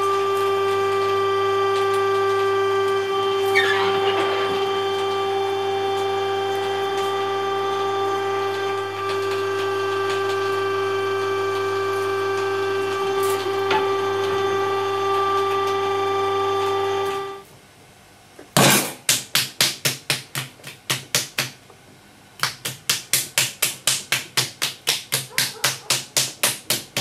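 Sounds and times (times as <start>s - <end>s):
pug mill whining hum: 0.0s - 17.6s, 24.8s - 27.0s
hands slapping clay: 19.0s - 21.6s, 22.4s - 27.0s.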